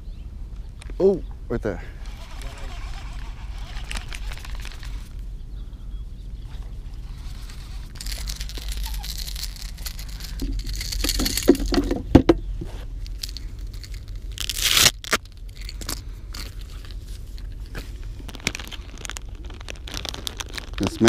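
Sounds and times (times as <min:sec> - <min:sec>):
knocks: 0:11.6 - 0:12.4
rising ripping noise: 0:13.2 - 0:15.4, 0:17.8 - 0:21.0.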